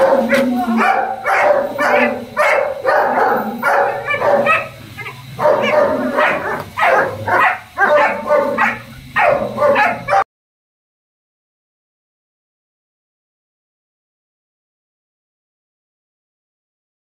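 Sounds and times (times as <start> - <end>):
dog barking sharply: 0.0 - 4.8, 5.4 - 10.3.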